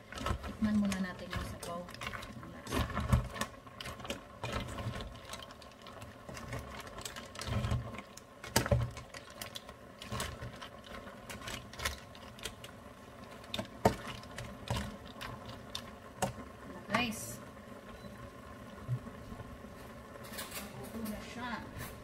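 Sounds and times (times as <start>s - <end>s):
mussel shells clattering in a pot: 0.0s - 16.5s
faint steady hum: 0.0s - 22.0s.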